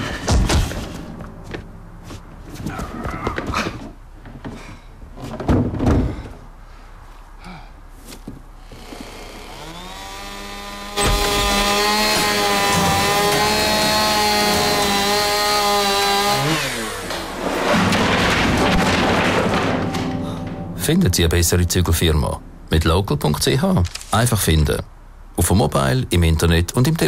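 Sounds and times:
chainsaw cutting wood: 8.7s - 17.9s.

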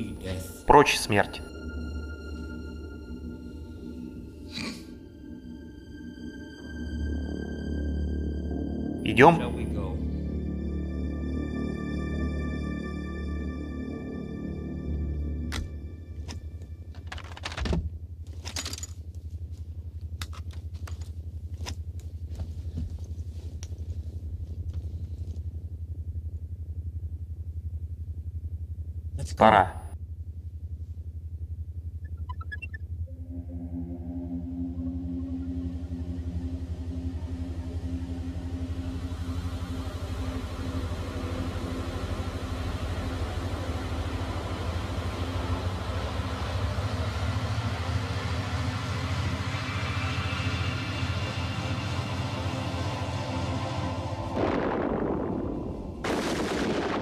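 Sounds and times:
low pulsing hum: 0.0s - 17.1s, 17.9s - 29.2s, 29.9s - 57.0s.

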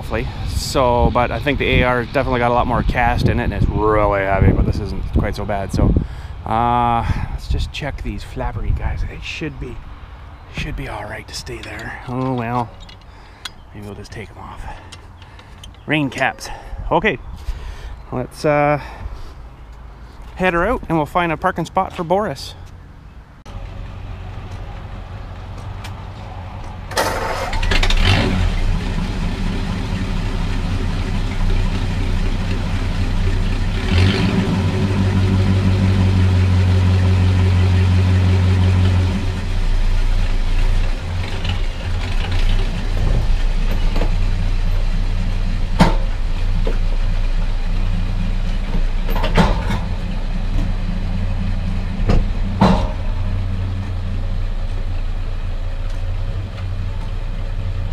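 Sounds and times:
tractor engine starting and running: 0.0s - 16.3s, 23.4s - 57.9s
sharp knocks: 52.0s - 53.2s.

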